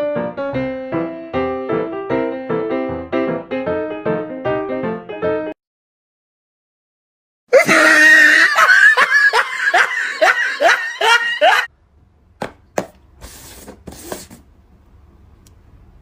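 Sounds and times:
person laughing: 0:07.5 - 0:11.7.

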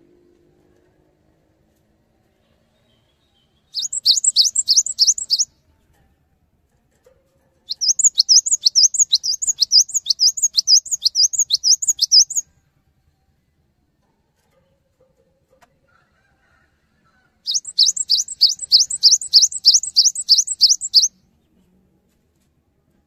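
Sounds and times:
bird singing sharp high notes: 0:03.8 - 0:05.5, 0:07.7 - 0:12.4, 0:17.5 - 0:21.1.

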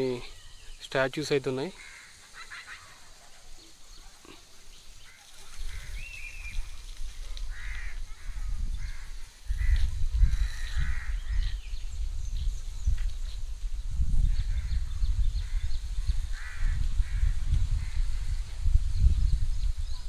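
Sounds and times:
birds chirping and calling: 0:00.0 - 0:20.0
wind rumble on microphone: 0:05.3 - 0:20.0.

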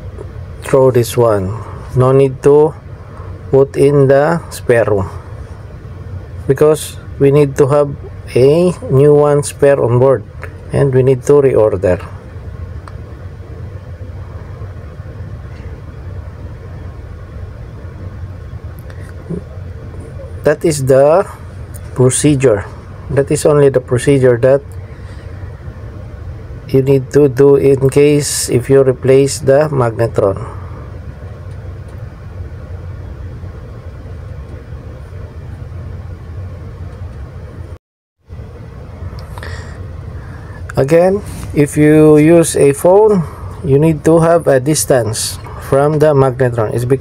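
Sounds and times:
ship machinery rumble: 0:00.0 - 0:47.0.

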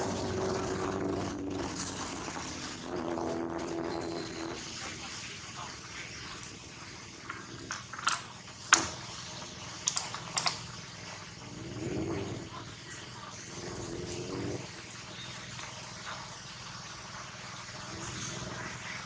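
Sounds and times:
low hum: 0:00.0 - 0:19.0
outdoor background noise: 0:00.0 - 0:19.0
rubber balloon squeaks and taps: 0:01.6 - 0:04.6.

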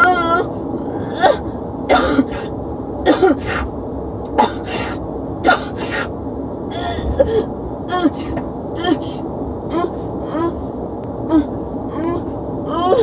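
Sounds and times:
car low hum: 0:00.0 - 0:13.0
woman hyperventilating: 0:06.7 - 0:08.4.

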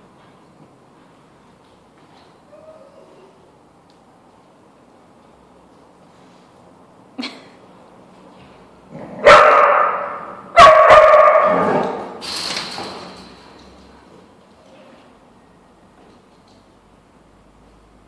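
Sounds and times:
dog barking: 0:09.2 - 0:11.8.

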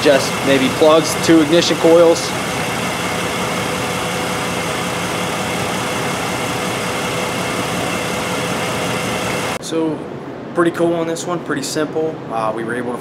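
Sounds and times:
misfiring car engine idling: 0:00.0 - 0:09.6.

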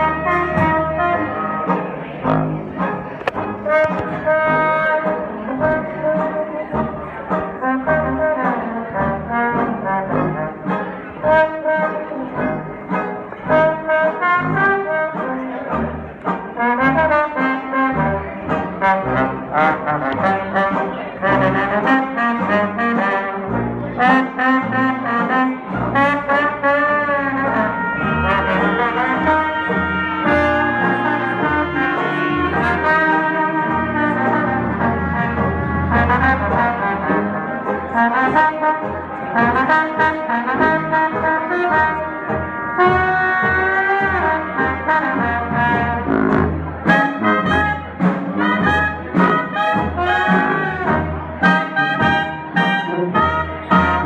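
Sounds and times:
jazz band playing: 0:00.0 - 0:54.0.

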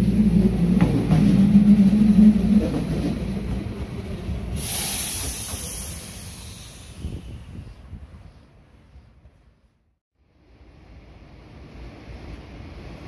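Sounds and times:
tram hum and wheel noise: 0:00.0 - 0:13.0
high even hiss: 0:04.6 - 0:07.2.

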